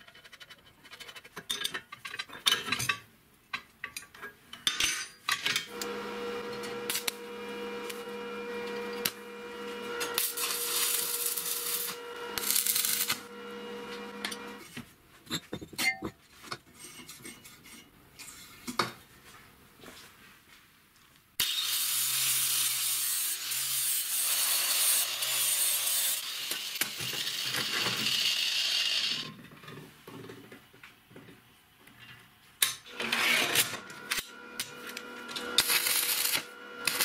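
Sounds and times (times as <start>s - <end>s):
angle grinder motor whining: 5.7s - 14.6s, 32.9s - 37.0s.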